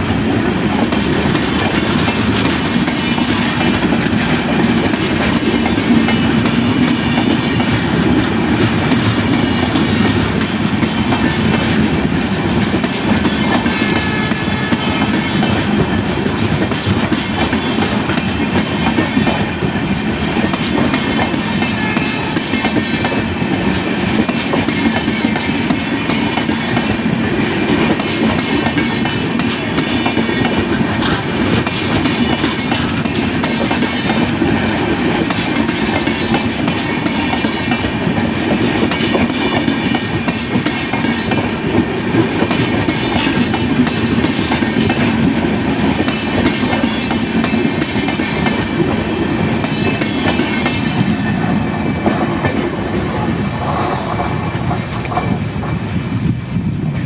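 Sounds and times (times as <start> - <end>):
train wheels clattering over rail joints: 0.1 - 55.9.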